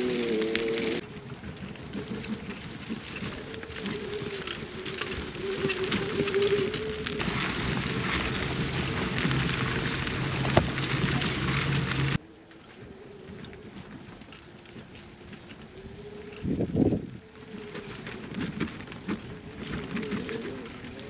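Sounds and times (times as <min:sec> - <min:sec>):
electric motor whine: 0:00.0 - 0:01.0
tyres crackling over ground: 0:00.0 - 0:21.0.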